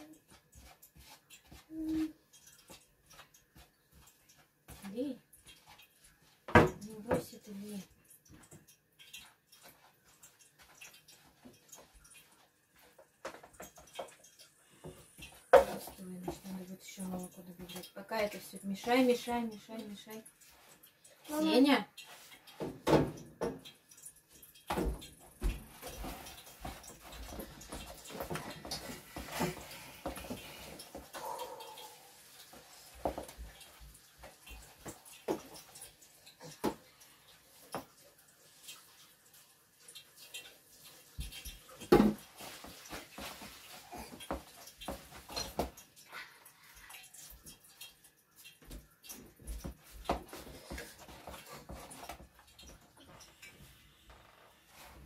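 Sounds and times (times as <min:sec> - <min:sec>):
spoon stirring batter in bowl: 0:00.0 - 0:16.6.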